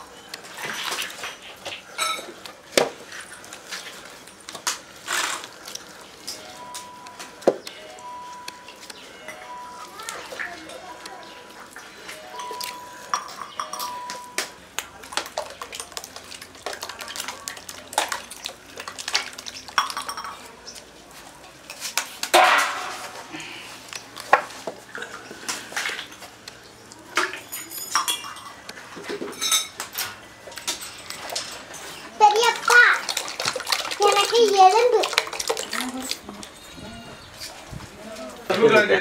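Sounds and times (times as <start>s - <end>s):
metal pots and utensils clinking: 0.1s - 20.8s, 21.6s - 26.3s, 27.1s - 36.6s.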